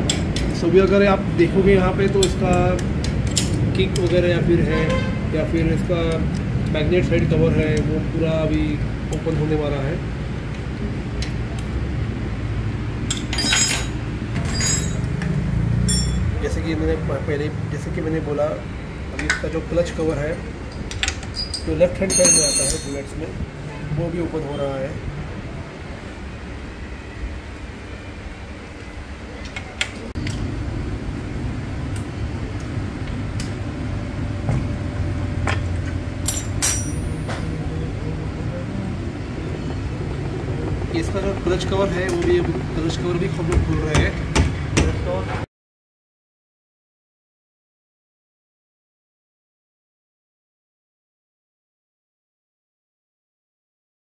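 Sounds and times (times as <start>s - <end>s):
spanner and bolts clinking: 13.1s - 16.3s, 20.9s - 23.1s, 36.2s - 37.4s
steady low hum: 30.1s - 45.5s.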